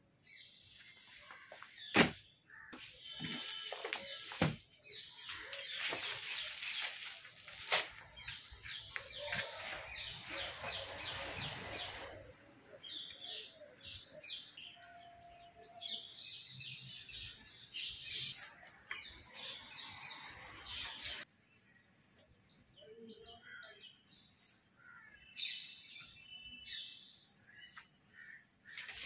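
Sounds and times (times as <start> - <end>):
fabric rustling: 5.4 - 8.6.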